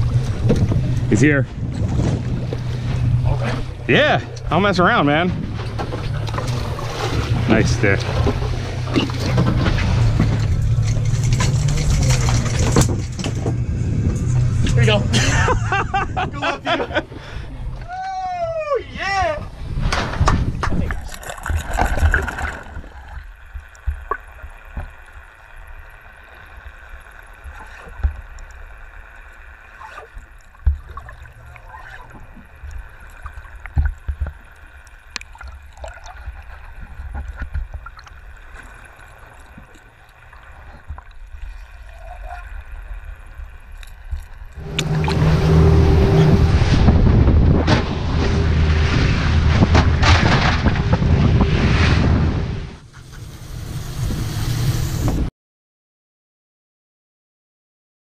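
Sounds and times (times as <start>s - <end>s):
steady low hum: 0.0s - 18.0s, 19.4s - 55.3s
rushing wind and water: 0.0s - 55.3s
muffled underwater sound: 20.6s - 51.5s.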